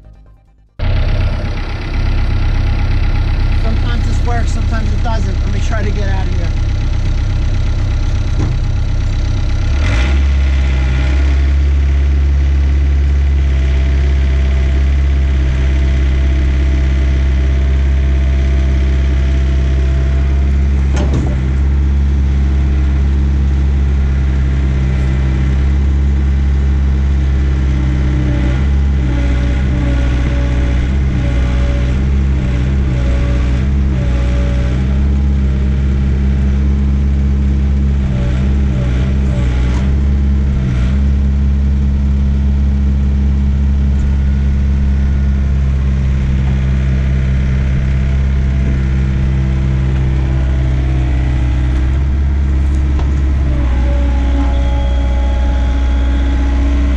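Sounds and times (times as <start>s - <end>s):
excavator diesel engine running: 0.0s - 56.9s
metal clunk: 20.8s - 21.7s.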